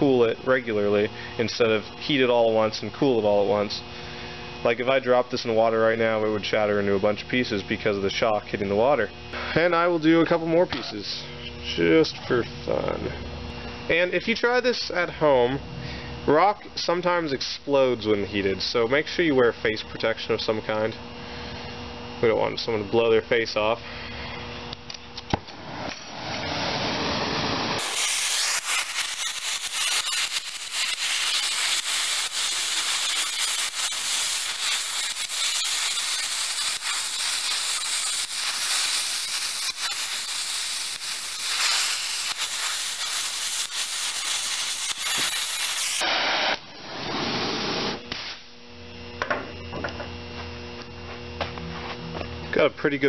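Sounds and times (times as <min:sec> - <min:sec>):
torch flame hissing: 0:25.5 - 0:48.0.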